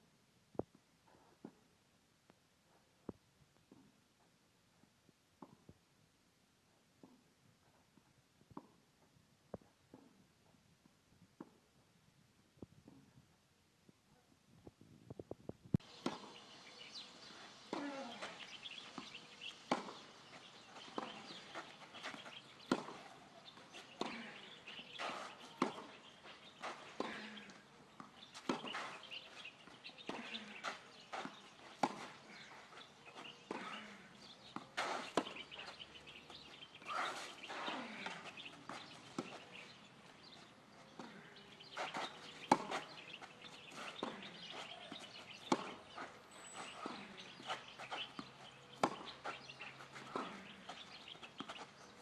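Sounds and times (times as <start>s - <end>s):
tennis ball hit by rackets: 16.0s - 16.4s, 17.7s - 29.2s, 30.0s - 32.6s, 33.4s - 35.8s, 41.0s - 46.1s, 46.8s - 51.6s.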